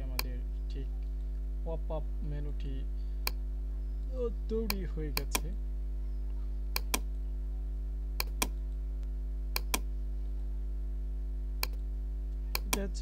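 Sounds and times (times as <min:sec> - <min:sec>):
steady low hum: 0:00.0 - 0:13.0
computer mouse clicking: 0:04.6 - 0:05.5, 0:06.8 - 0:07.2, 0:08.2 - 0:08.6, 0:09.5 - 0:09.9, 0:11.6 - 0:11.8, 0:12.5 - 0:12.8.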